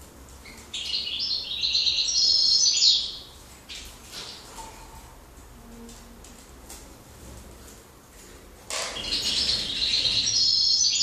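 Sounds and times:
high twittering birdsong: 0.4 - 4.5, 8.9 - 11.0
finches chirping: 0.5 - 3.8, 9.0 - 11.0.

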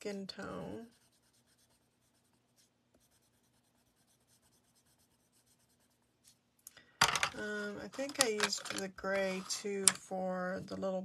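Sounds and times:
pencil scratching on card: 0.4 - 6.4.

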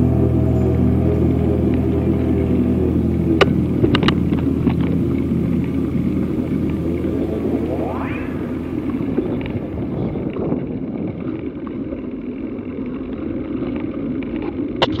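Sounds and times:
wind buffeting microphone: 0.0 - 12.3
bicycle tyres rolling on paving: 8.4 - 14.8.

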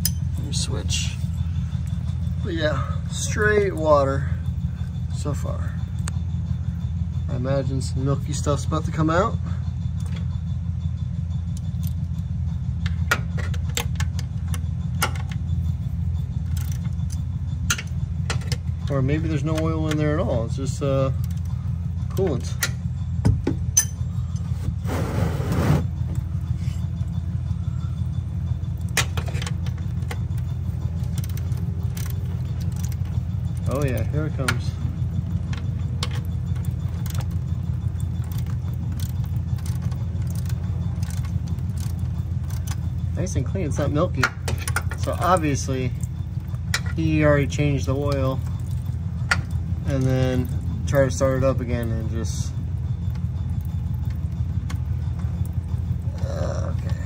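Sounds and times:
low steady hum: 0.0 - 57.0
ratchet wrench clicking: 35.4 - 43.0.

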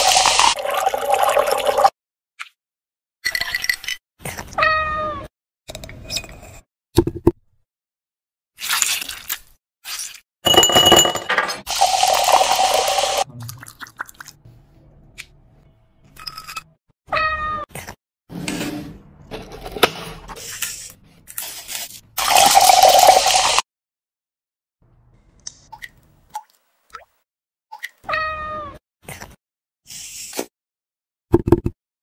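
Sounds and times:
liquid pouring into glass: 11.7 - 14.3
cat meowing: 28.1 - 28.8.

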